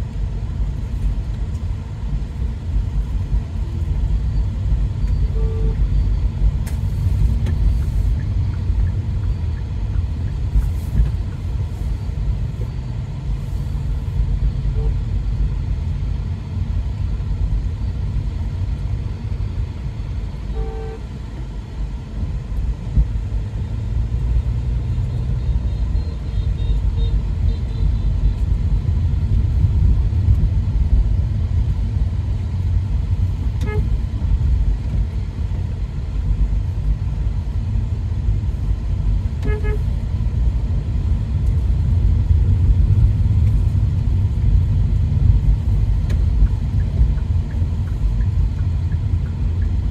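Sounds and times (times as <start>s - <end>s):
car driving rumble inside cabin: 0.0s - 49.9s
car horn toots: 20.5s - 21.0s, 33.6s - 33.9s, 39.4s - 39.9s.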